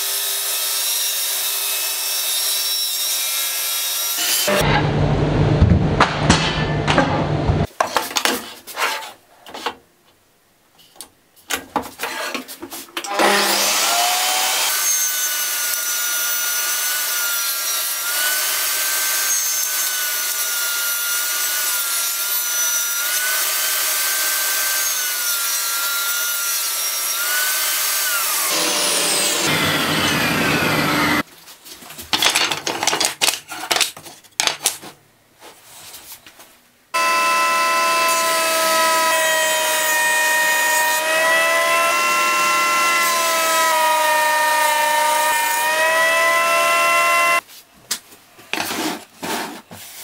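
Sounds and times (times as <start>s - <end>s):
table saw cutting wood: 0.0s - 4.7s, 13.1s - 31.2s, 37.0s - 47.4s.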